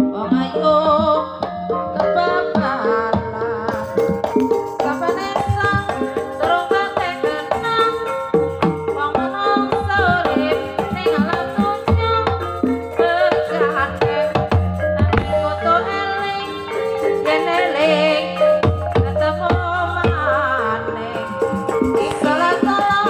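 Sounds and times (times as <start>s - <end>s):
wavering melody line: 0.0s - 23.0s
hand drums beating quick rhythm: 2.0s - 15.5s, 18.6s - 23.0s.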